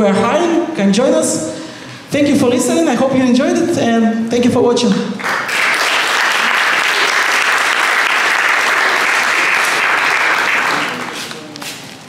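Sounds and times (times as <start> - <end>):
audience applauding: 5.2 - 11.6.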